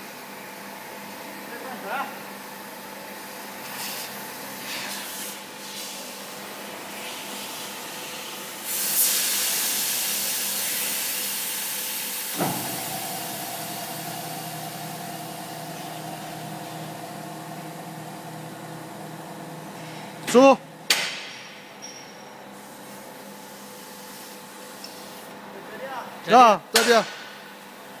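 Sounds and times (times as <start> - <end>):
loud hiss of air: 3.7 - 6.2, 6.9 - 18.4
machine humming: 12.3 - 20.9.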